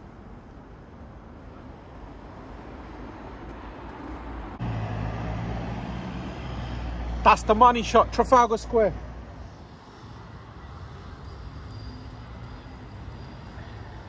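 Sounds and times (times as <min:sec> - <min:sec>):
hiss of passing vehicles: 0:02.4 - 0:14.0
low engine hum: 0:04.6 - 0:07.3.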